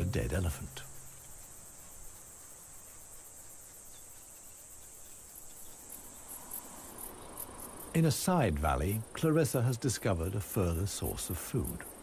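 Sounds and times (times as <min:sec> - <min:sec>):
high-pitched insect chirring: 0:00.0 - 0:08.1
soft background hiss: 0:00.0 - 0:12.0.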